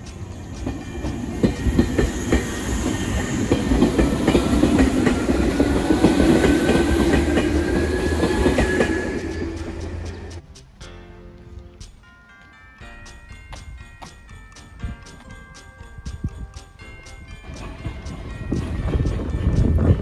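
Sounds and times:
train motor whine: 0:00.0 - 0:10.4
train wheels clacking over rail joints: 0:00.0 - 0:10.4, 0:13.0 - 0:20.0.

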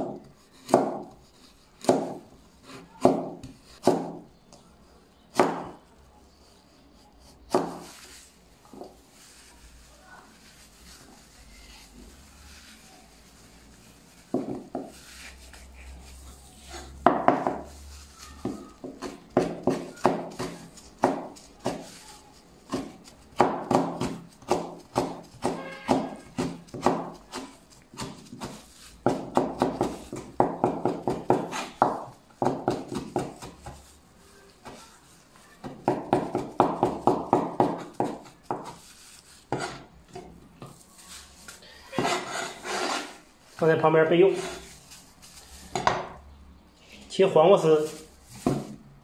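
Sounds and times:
knife chopping on wooden board: 0:00.0 - 0:01.2, 0:01.8 - 0:04.2, 0:05.3 - 0:05.8, 0:07.5 - 0:07.8, 0:18.4 - 0:21.9, 0:22.7 - 0:33.8, 0:35.6 - 0:38.8, 0:42.0 - 0:43.1.

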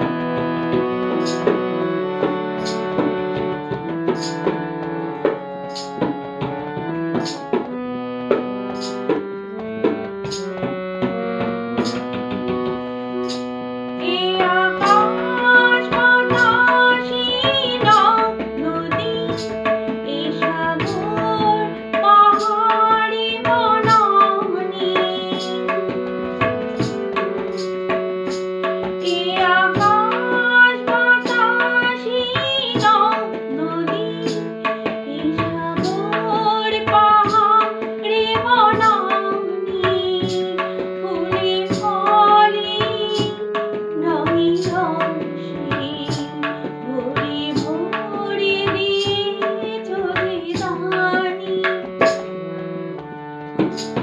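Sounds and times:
tabla strokes: 0:00.0 - 0:13.6, 0:14.2 - 0:54.0
harmonium: 0:00.0 - 0:54.0
woman singing: 0:14.0 - 0:26.0, 0:29.0 - 0:52.3.

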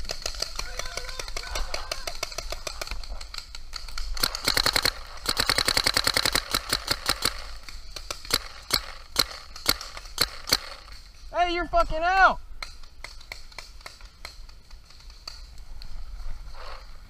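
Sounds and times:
paintball marker firing: 0:00.0 - 0:11.0
distant paintball markers popping: 0:00.0 - 0:11.1, 0:12.6 - 0:16.0.

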